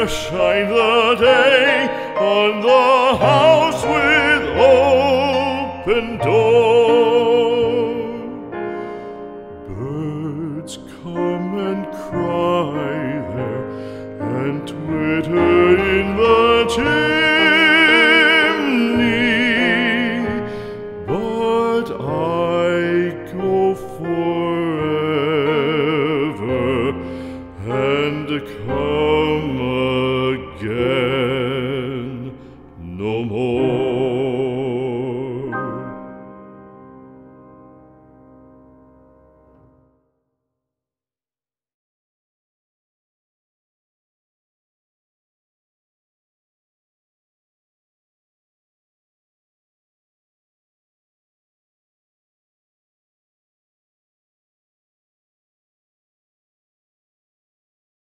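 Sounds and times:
person singing with vibrato: 0:00.0 - 0:36.3
soft musical accompaniment: 0:00.0 - 0:40.0.

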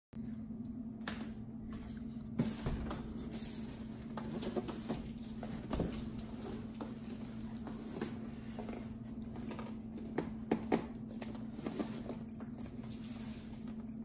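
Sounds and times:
steady low hum: 0:00.2 - 0:14.0.

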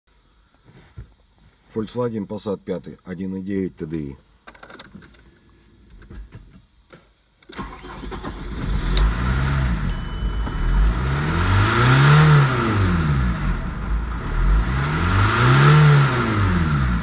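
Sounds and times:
diesel engine starting and revving: 0:07.6 - 0:17.0.

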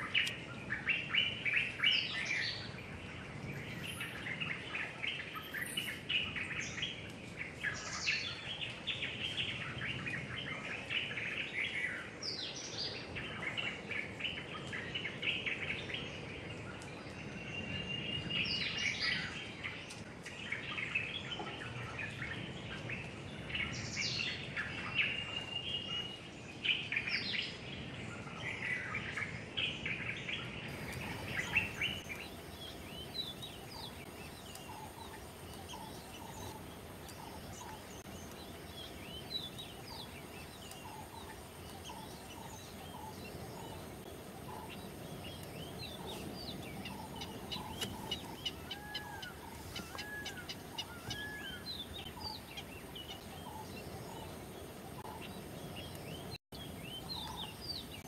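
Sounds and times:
birds chirping: 0:00.0 - 0:58.0
bird calls sweeping downward: 0:30.7 - 0:58.0.

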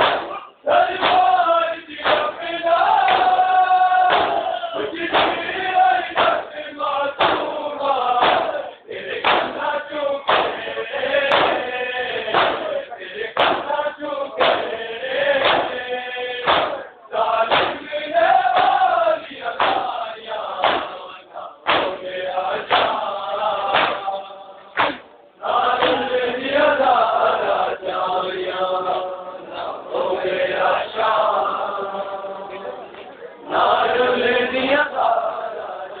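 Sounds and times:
men chanting in unison: 0:00.0 - 0:36.0
hands slapping bare chests: 0:01.0 - 0:01.4, 0:02.0 - 0:02.4, 0:03.0 - 0:03.4, 0:04.1 - 0:04.4, 0:05.1 - 0:05.5, 0:06.2 - 0:06.5, 0:07.2 - 0:07.5, 0:08.2 - 0:08.6, 0:09.2 - 0:09.6, 0:10.3 - 0:10.6, 0:11.3 - 0:11.7, 0:12.3 - 0:12.7, 0:13.4 - 0:13.7, 0:14.4 - 0:14.7, 0:15.4 - 0:15.8, 0:16.4 - 0:16.8, 0:17.5 - 0:17.8, 0:18.5 - 0:18.8, 0:19.6 - 0:19.9, 0:20.6 - 0:21.0, 0:21.7 - 0:22.0, 0:22.7 - 0:23.0, 0:23.7 - 0:24.1, 0:24.8 - 0:25.1.

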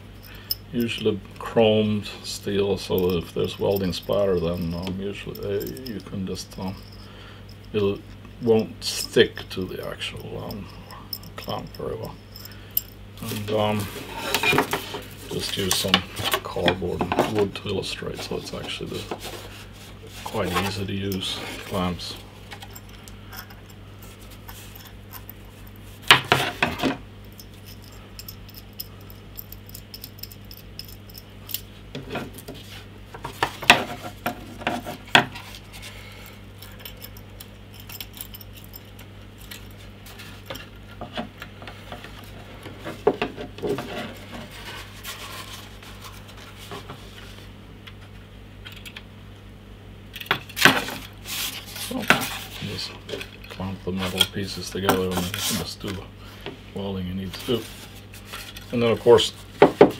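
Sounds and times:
metal clamp clinking and rattling: 0:36.6 - 0:39.8.

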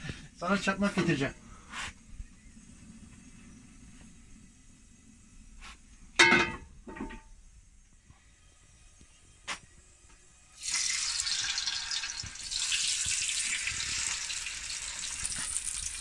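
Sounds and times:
fish sizzling in hot oil: 0:10.5 - 0:16.0.

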